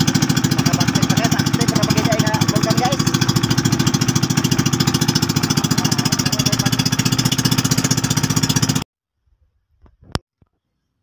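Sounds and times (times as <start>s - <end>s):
boat engine pulsing: 0.0s - 8.8s.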